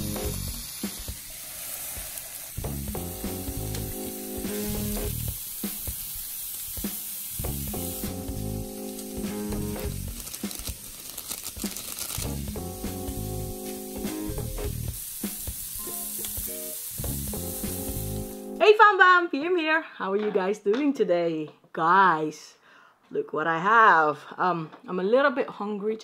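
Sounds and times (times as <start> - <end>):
meat sizzling in a pan: 0.0 - 18.6
background music: 0.0 - 19.3.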